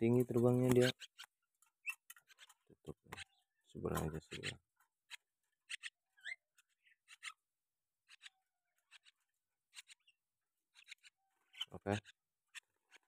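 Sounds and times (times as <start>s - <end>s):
faint clicks and taps: 0.2s - 3.3s.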